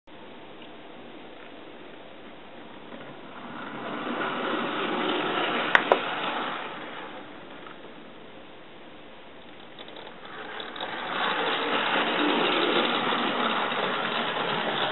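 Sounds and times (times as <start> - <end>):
model train motor whirring: 3.3 - 7.8, 9.4 - 14.9.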